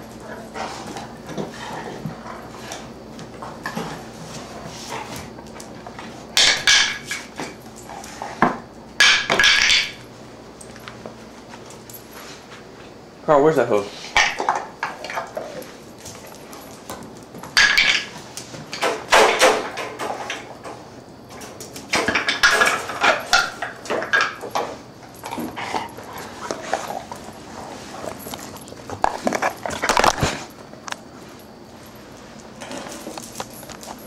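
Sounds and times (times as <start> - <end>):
dog chew clattering and scuffling: 0.0 - 10.0, 13.9 - 34.0.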